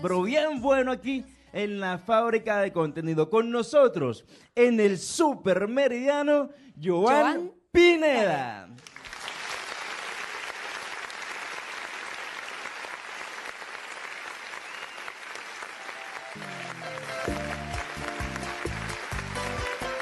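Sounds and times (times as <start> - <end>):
applause: 8.7 - 20.0
bachata band playing: 16.0 - 20.0.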